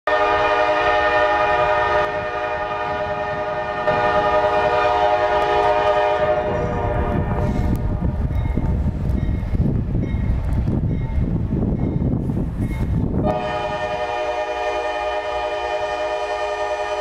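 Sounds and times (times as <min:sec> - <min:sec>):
locomotive air horn blast: 0:00.1 - 0:08.3, 0:13.2 - 0:17.0
train rumble: 0:00.1 - 0:17.0.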